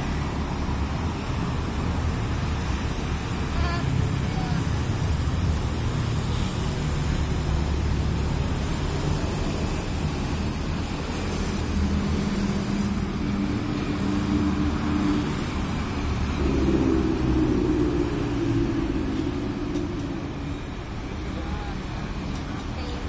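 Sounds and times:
traffic passing: 0.0s - 23.0s
clear engine note: 16.3s - 20.4s.

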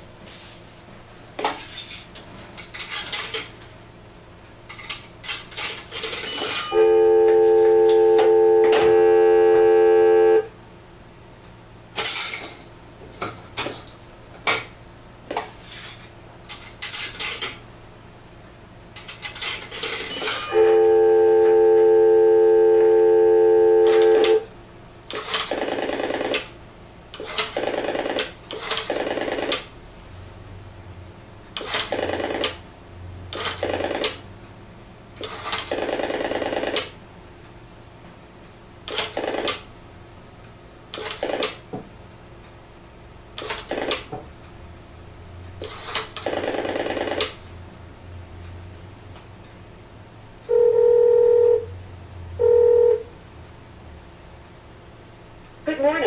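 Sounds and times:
loud steady tone: 6.2s - 10.6s, 20.1s - 24.5s
payphone clinks and rattles: 19.0s - 20.5s.

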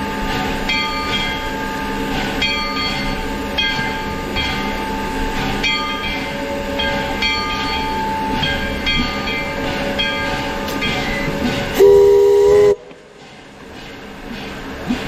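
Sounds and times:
locomotive bell ringing: 0.0s - 12.3s
steam locomotive moving: 0.0s - 15.0s
steam whistle blast: 11.8s - 12.9s.

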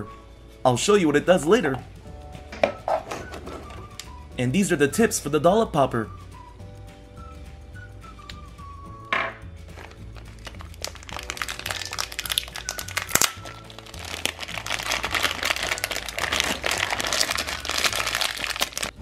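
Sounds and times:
background music: 0.0s - 19.0s
plastic bag crinkling: 9.8s - 19.0s.

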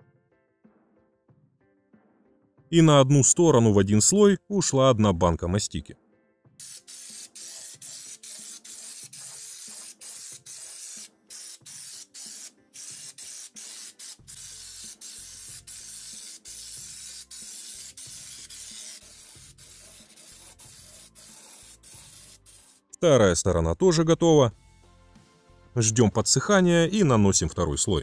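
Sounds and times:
air spray gun hissing: 6.6s - 22.8s.

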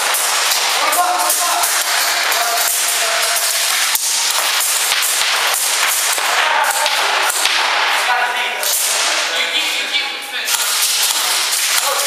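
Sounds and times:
airsoft guns firing: 0.0s - 8.0s.

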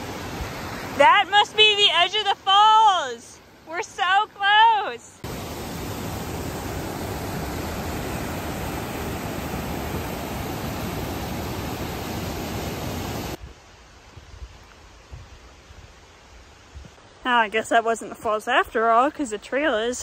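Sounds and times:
creek cascading over boulders: 0.0s - 13.4s.

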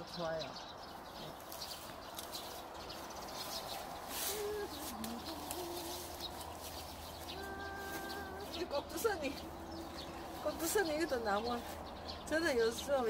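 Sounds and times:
feet rustling through grass: 1.0s - 13.0s.

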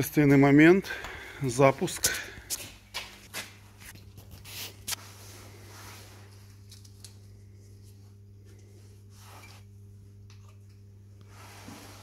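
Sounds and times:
faint low hum: 3.5s - 12.0s.

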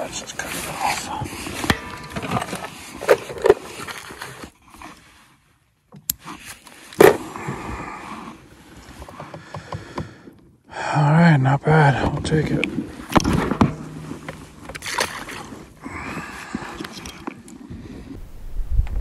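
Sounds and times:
scraping: 12.2s - 17.4s.

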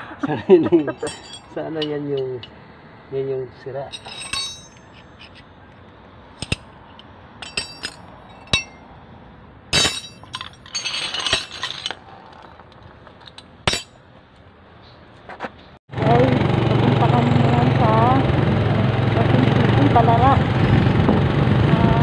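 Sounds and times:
metal wrenches clinking: 0.8s - 2.6s, 3.9s - 5.5s, 6.4s - 8.8s, 9.7s - 12.6s, 13.2s - 14.0s.

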